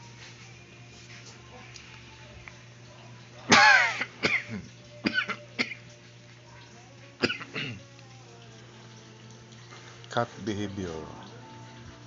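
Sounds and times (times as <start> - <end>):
person clearing throat: 3.5 - 5.8, 7.2 - 7.9
person coughing: 3.5 - 5.8, 7.2 - 7.8.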